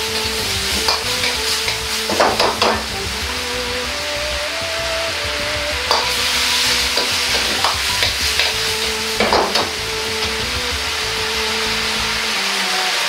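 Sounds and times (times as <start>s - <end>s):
metal ladle scraping a wok: 0.0s - 4.2s, 5.9s - 11.6s
food sizzling in a wok: 0.0s - 13.0s.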